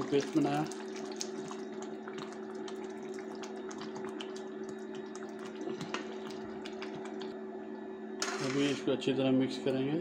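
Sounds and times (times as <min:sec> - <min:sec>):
gravy bubbling in a pan: 0:00.0 - 0:07.8
steady low hum: 0:00.0 - 0:10.0.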